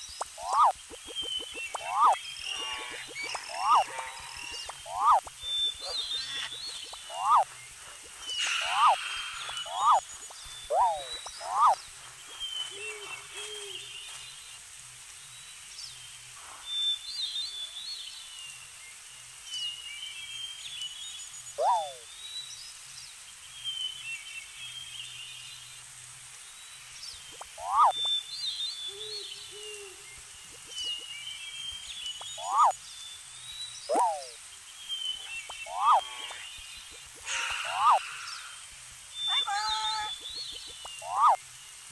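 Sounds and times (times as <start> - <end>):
whistled bird calls: 0.0 - 14.2, 21.6 - 22.1, 27.3 - 32.8, 33.8 - 41.4
birds chirping and twittering: 0.0 - 41.9.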